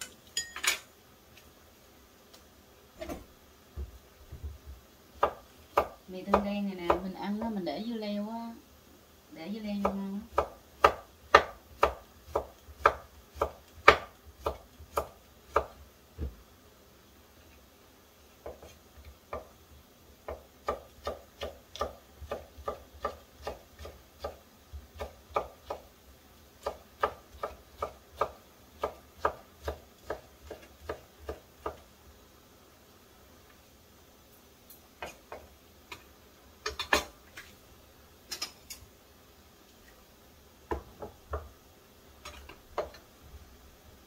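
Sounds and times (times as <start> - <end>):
knife chopping on wooden board: 5.2 - 7.0, 9.8 - 16.3, 18.4 - 19.5, 20.3 - 24.4, 26.6 - 31.8, 40.7 - 41.5.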